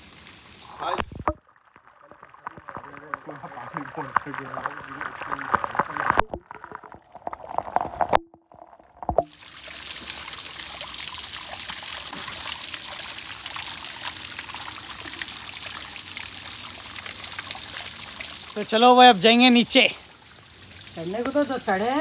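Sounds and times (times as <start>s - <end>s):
waterfall hissing and splashing: 0.0s - 1.2s, 9.3s - 22.0s.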